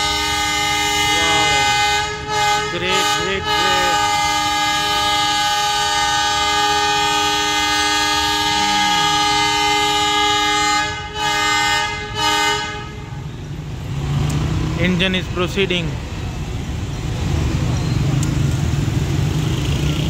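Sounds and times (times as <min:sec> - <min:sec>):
locomotive horn blast: 0:00.0 - 0:13.5.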